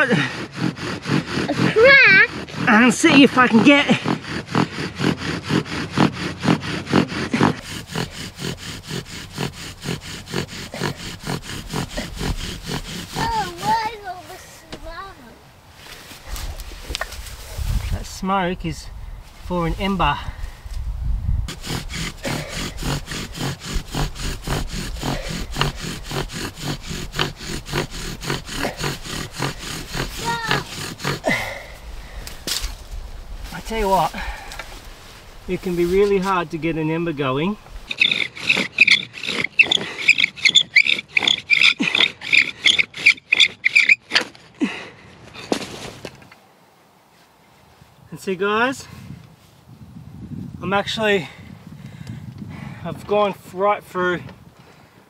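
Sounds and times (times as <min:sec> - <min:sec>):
bow drill spindle grinding and squeaking: 0:00.0 - 0:14.2, 0:21.5 - 0:31.5, 0:35.9 - 0:44.4
bow drill spindle squeaking: 0:37.8 - 0:44.3.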